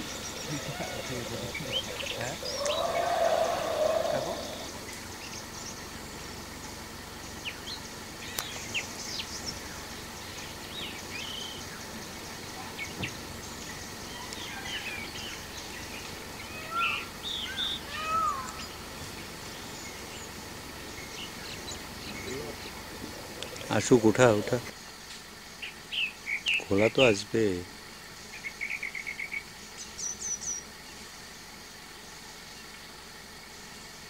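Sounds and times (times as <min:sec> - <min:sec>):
birds chirping and whistling: 0:00.0 - 0:24.7
steady background hiss: 0:00.0 - 0:34.0.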